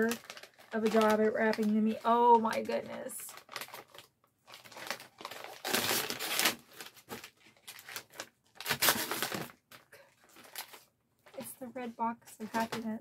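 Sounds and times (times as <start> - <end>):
wrapping paper tearing and crinkling: 0.0 - 11.8.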